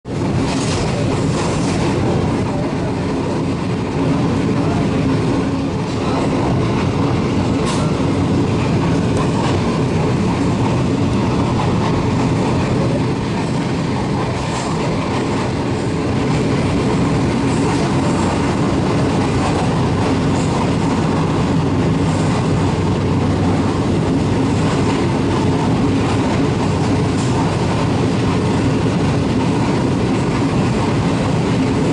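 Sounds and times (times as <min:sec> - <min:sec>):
train wheels rumbling on track: 0:00.0 - 0:31.9
faint rail clicks: 0:07.5 - 0:08.1.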